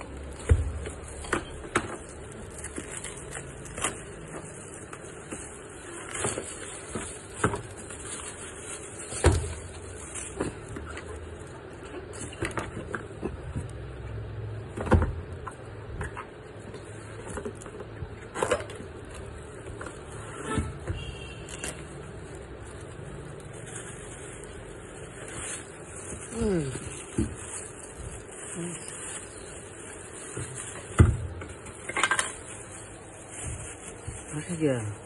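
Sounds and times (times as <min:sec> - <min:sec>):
cardboard and paper rustling: 0:00.0 - 0:13.9, 0:14.6 - 0:35.0.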